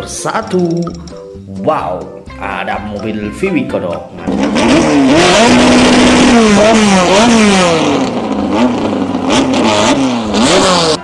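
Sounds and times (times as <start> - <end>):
car engine revving hard: 4.2 - 11.0.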